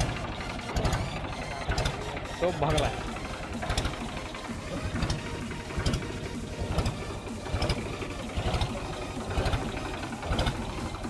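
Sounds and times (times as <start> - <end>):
engine idling with knocking beat: 0.0 - 11.0.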